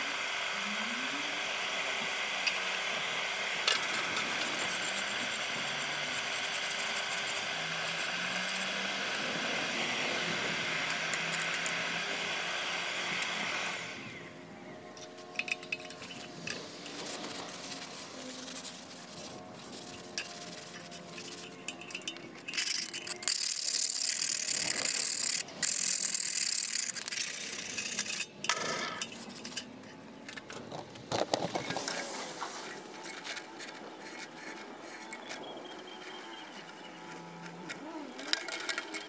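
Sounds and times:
sandpaper scrubbing steel blade: 1.8s - 14.1s, 15.0s - 29.7s, 31.6s - 35.5s.

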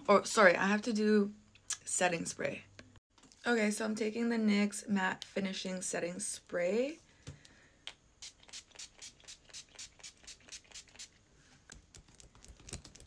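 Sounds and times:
spray bottle hissing: 8.2s - 11.2s.

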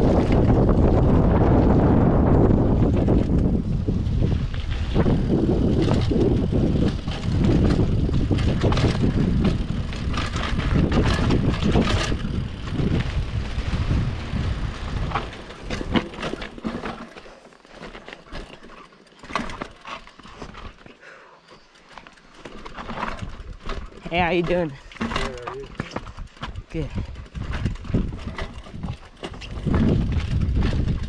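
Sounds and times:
wind buffeting microphone: 0.0s - 16.9s, 25.5s - 31.0s
bike rumbling and rattling: 0.0s - 31.0s
bike clicks and knocks: 2.5s - 31.0s.

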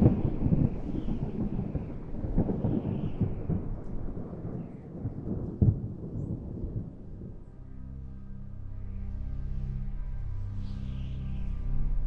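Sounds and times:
sharp thunderclap: 0.0s - 7.4s
thunder rumbling and crackling: 0.0s - 7.5s.

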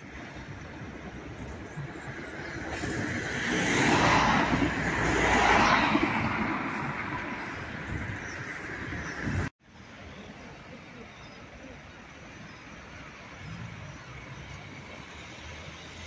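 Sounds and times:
road vehicle passing: 0.0s - 9.5s
outdoor background noise: 0.0s - 16.0s.

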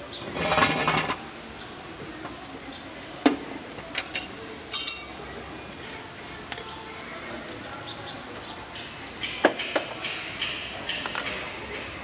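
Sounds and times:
metal hand tools clattering: 4.0s - 5.2s
sharp metal clank: 4.0s - 5.2s
ringing metallic jingle: 4.1s - 5.2s.

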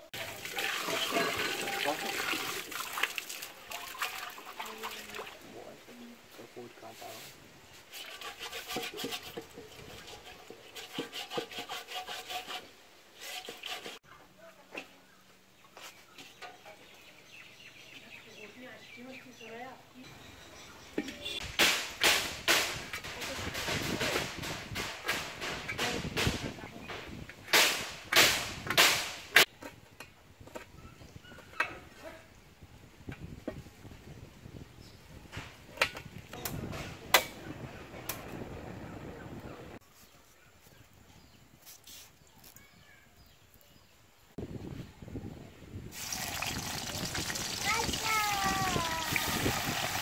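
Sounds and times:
hand scrubbing wet clay pot: 0.1s - 5.4s, 7.8s - 14.1s, 46.0s - 50.0s.

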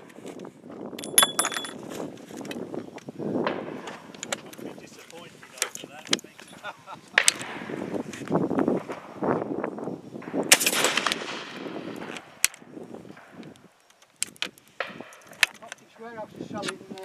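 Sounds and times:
rifle shots: 10.3s - 12.4s.

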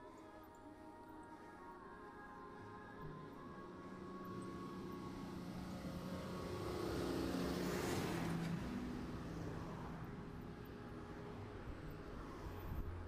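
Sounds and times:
car passing by: 4.4s - 13.0s.

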